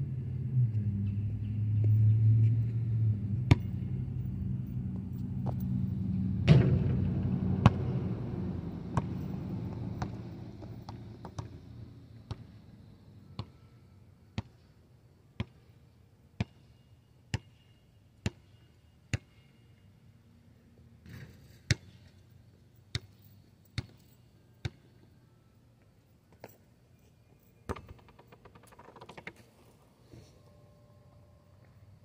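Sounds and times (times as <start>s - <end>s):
basketball bouncing on asphalt: 3.4s - 12.6s, 13.3s - 13.6s, 14.4s - 14.6s, 15.4s - 15.6s, 16.4s - 17.6s, 18.2s - 19.5s, 21.1s - 22.1s, 22.9s - 23.2s, 23.8s - 25.0s, 27.6s - 29.4s.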